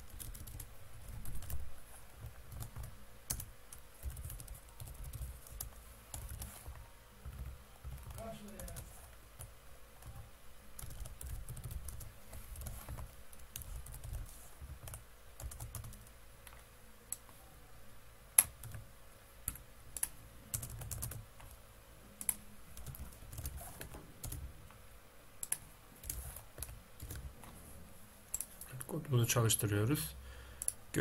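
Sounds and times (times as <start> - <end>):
keyboard typing: 0.0 - 17.3, 18.4 - 18.8, 19.4 - 21.6, 22.2 - 24.5, 25.4 - 27.5, 28.3 - 28.8.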